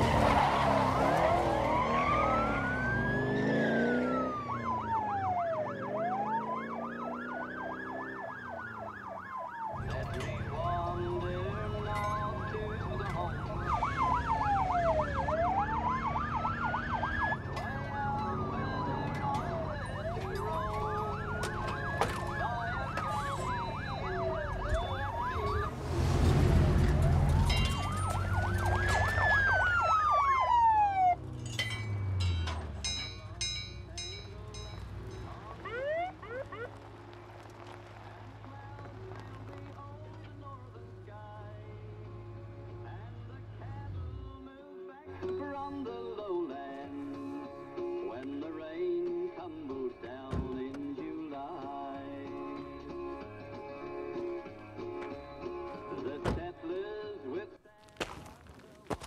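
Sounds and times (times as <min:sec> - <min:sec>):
police siren wailing: 0:00.0 - 0:31.4, 0:34.2 - 0:37.2
car engine and road rumble: 0:00.0 - 0:59.0
siren yelp: 0:00.1 - 0:10.2, 0:12.2 - 0:25.8, 0:27.2 - 0:31.2, 0:35.2 - 0:36.8.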